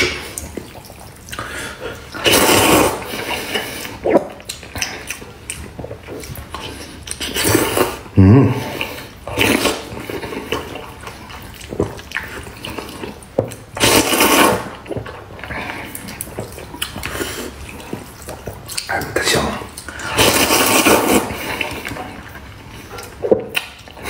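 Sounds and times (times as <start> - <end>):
man chewing: 0.0 - 24.0
man slurping noodles: 1.3 - 4.4, 6.7 - 10.8, 13.8 - 14.9, 19.9 - 22.0.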